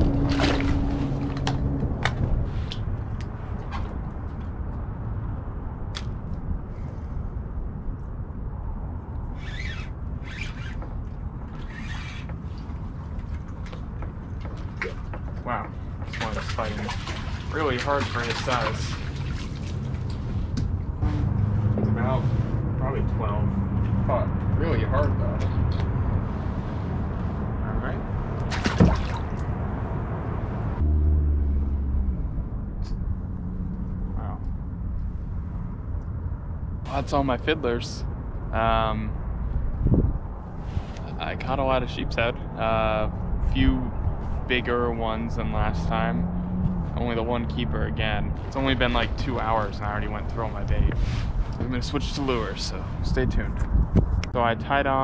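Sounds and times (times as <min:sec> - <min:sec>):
water splash with dripping: 0:00.0 - 0:02.2, 0:16.0 - 0:20.3, 0:28.4 - 0:29.5
low rumble: 0:00.0 - 0:09.4, 0:17.2 - 0:54.7
low steady hum: 0:00.0 - 0:55.0.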